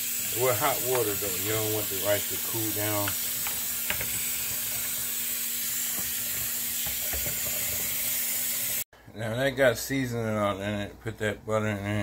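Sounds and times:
tap water running into colander: 0.0s - 8.8s.

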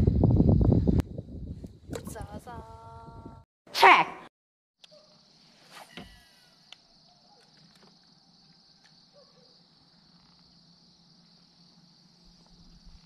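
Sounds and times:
crickets trilling: 4.8s - 13.0s.

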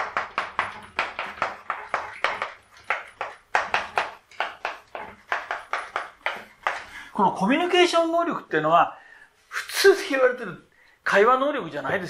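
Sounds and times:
chalk writing on chalkboard: 0.2s - 6.9s.

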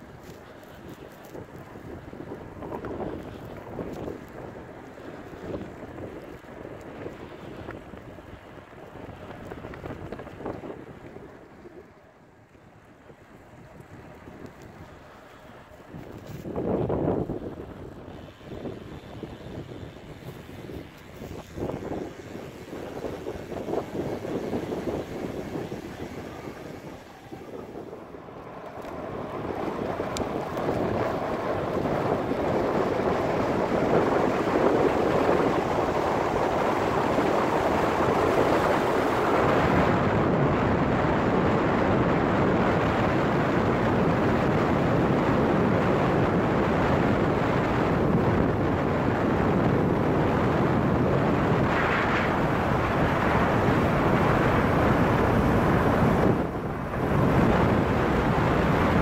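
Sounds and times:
wind rushing over microphone: 0.0s - 59.0s.

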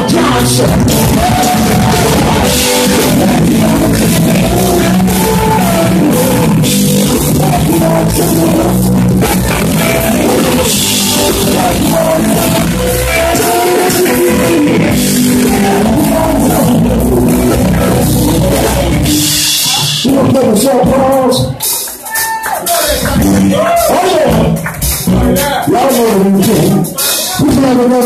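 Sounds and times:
bending electric guitar lead: 0.0s - 21.8s
live blues band playing: 0.0s - 28.0s.

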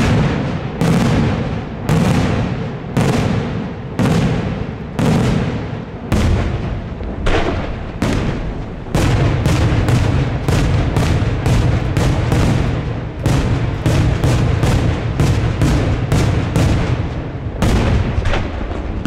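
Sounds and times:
fireworks shells bursting: 0.0s - 19.0s
low rumble: 6.6s - 14.2s.

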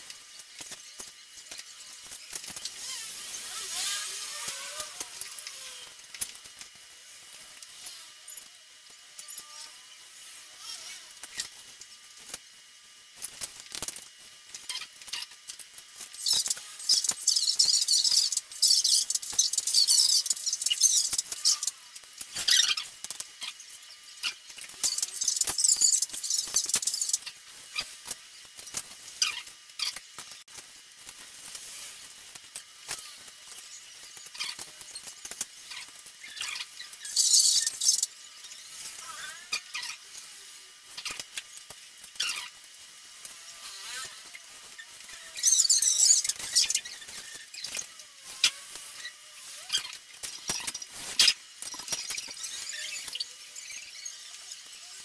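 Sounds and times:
small plastic clicks: 13.2s - 30.4s.

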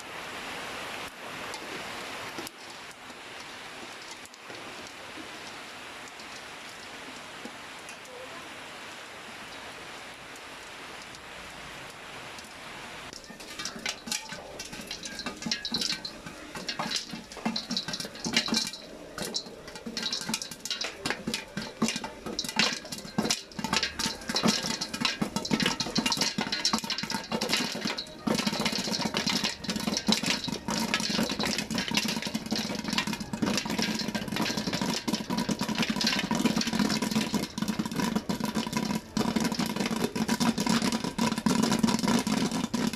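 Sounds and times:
oil sizzling: 12.4s - 42.9s
popcorn popping: 13.1s - 42.9s.

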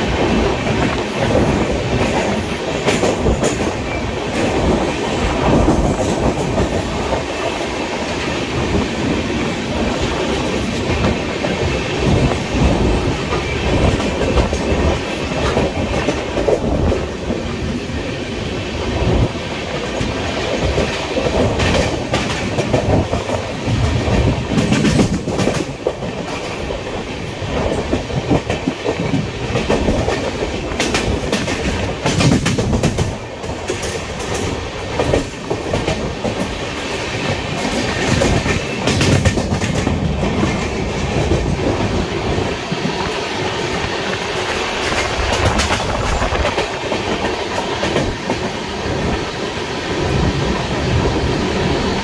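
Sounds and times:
train rumbling at speed: 0.0s - 52.0s.

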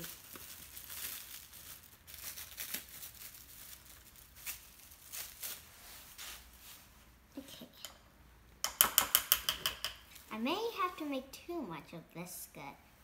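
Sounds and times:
plastic wrap crinkling: 0.0s - 7.0s.

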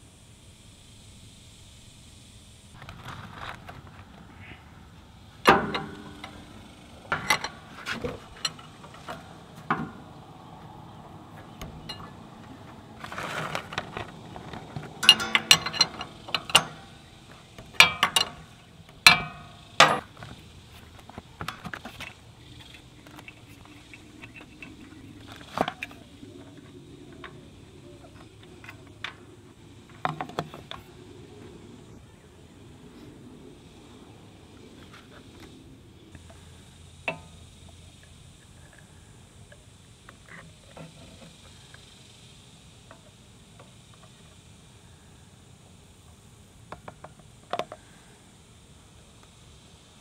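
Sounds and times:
metal wrench clicking on bolt: 5.4s - 7.7s, 15.0s - 17.1s, 17.7s - 20.1s.

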